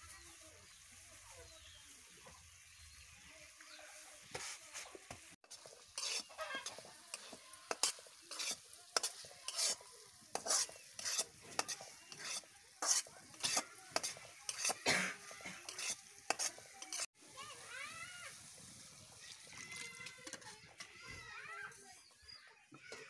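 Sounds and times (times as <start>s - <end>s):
frying hiss: 0.0s - 23.0s
wooden spatula scraping metal pan: 4.2s - 17.1s, 19.6s - 22.2s.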